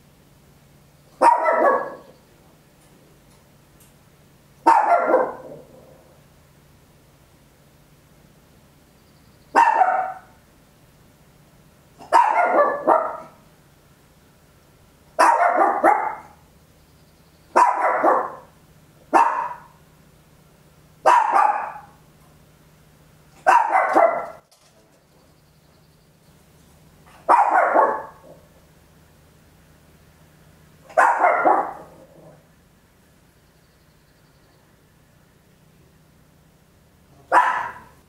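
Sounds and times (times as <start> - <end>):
small dog barking: 1.2 - 2.2, 4.6 - 6.0, 9.5 - 10.4, 12.0 - 13.4, 15.2 - 16.4, 17.5 - 19.8, 21.0 - 22.0, 23.4 - 24.4, 27.2 - 28.5, 30.9 - 32.4, 37.1 - 38.0.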